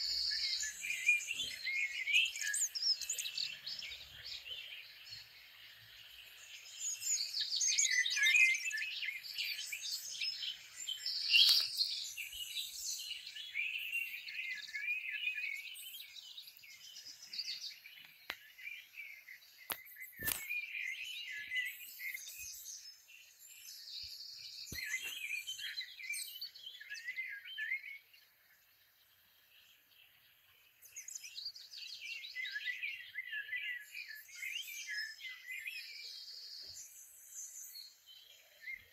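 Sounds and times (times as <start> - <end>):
small birds chirping: 0.0 - 38.9.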